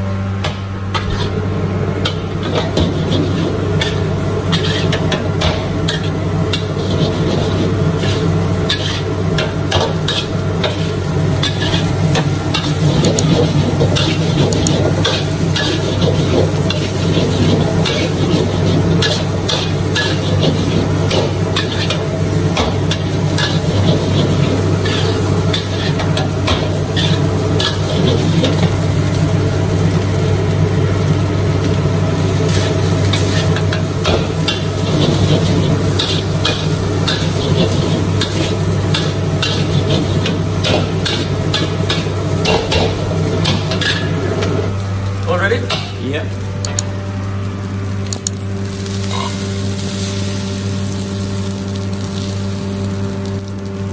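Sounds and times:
steady low hum: 0:00.0 - 0:53.9
fried rice sizzling: 0:00.7 - 0:53.9
metal spatula scraping a wok: 0:01.0 - 0:01.4, 0:02.0 - 0:28.7, 0:32.5 - 0:44.3, 0:49.0 - 0:49.5.

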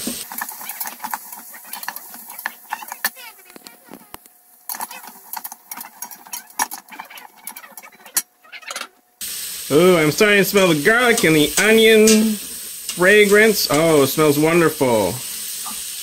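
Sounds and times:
metal spatula scraping steel pot: 0:00.0 - 0:03.1, 0:04.7 - 0:08.9.

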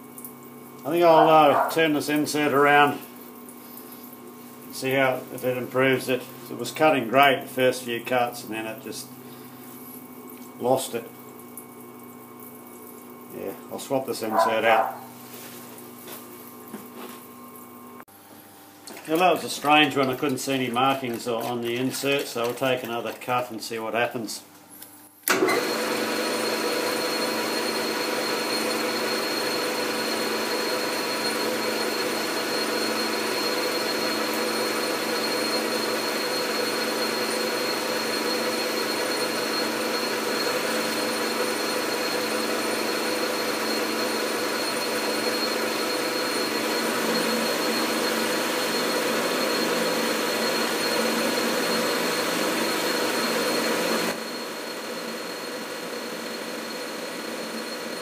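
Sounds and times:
metal lathe whine: 0:25.3 - 0:58.0.

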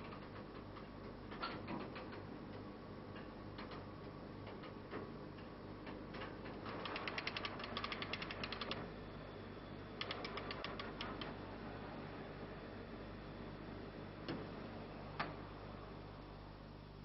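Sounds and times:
low steady hum: 0:08.2 - 0:17.0.

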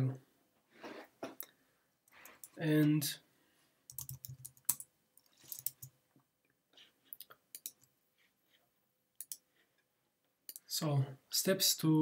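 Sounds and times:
computer keyboard keystrokes: 0:03.9 - 0:04.8, 0:07.6 - 0:07.9.

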